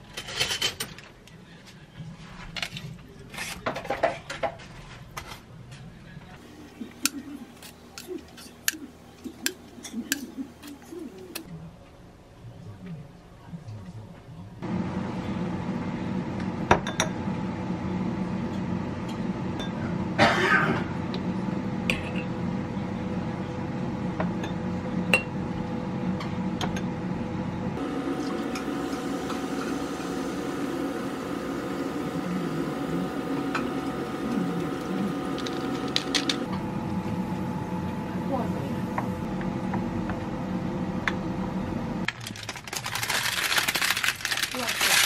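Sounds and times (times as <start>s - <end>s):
air fryer humming: 6.4s - 11.5s, 14.6s - 45.0s.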